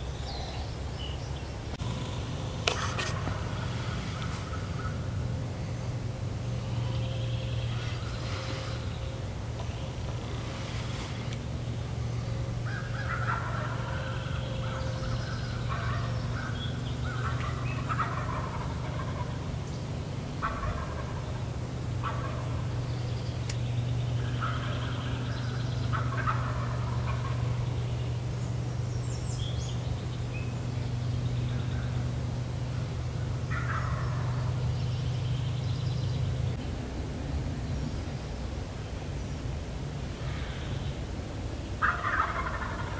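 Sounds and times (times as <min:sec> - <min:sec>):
turkey gobbling: 0:02.6 - 0:05.2, 0:12.6 - 0:19.8, 0:20.4 - 0:21.4, 0:22.0 - 0:22.8, 0:24.2 - 0:27.7, 0:33.3 - 0:34.6, 0:41.8 - 0:42.9.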